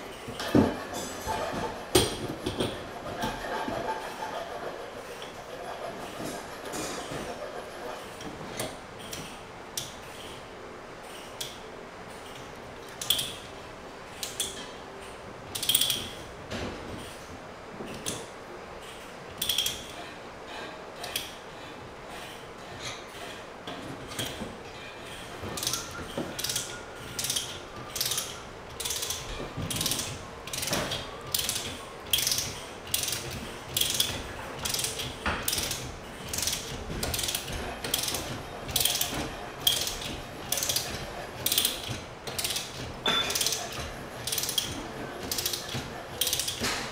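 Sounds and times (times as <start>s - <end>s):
ratchet pawl clicking: 19.4s - 20.0s, 25.6s - 42.8s, 43.4s - 46.8s.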